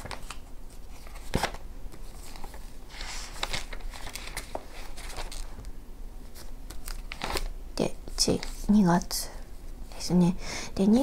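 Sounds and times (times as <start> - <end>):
paper pages rustling: 0.0 - 7.5.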